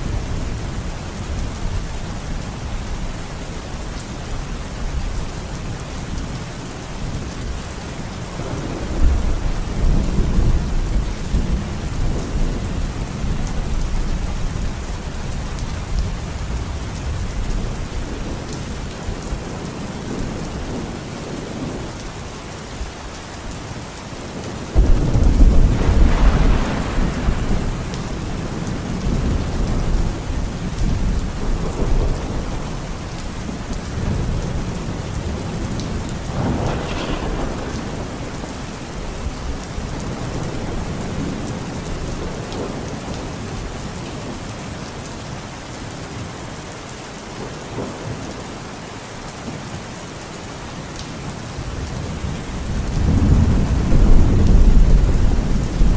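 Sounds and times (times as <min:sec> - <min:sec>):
heavy rain pouring: 0:00.0 - 0:55.9
rolling thunder: 0:08.3 - 0:14.9, 0:24.7 - 0:43.3, 0:51.8 - 0:55.9
loud thunderclap: 0:24.7 - 0:28.2, 0:35.4 - 0:39.0, 0:52.7 - 0:55.9.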